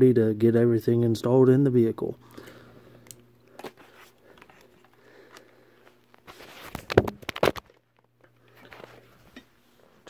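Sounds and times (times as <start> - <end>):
handling rustles: 3.5 - 9.6
phone dropped and knocking: 6.8 - 7.8.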